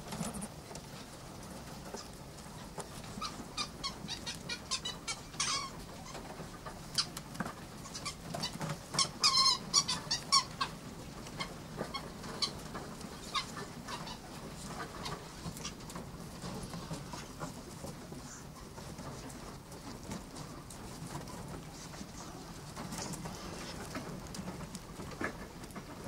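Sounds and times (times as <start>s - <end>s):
mink squeaking and chirping: 3.1s - 7.2s, 7.8s - 10.8s, 13.2s - 15.8s.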